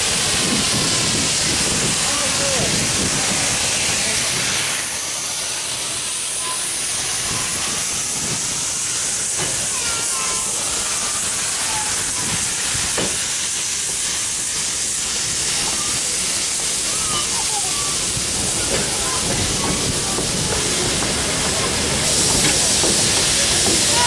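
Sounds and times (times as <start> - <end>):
steam hissing from locomotive: 0.0 - 24.0
train coaches knocking: 6.8 - 24.0.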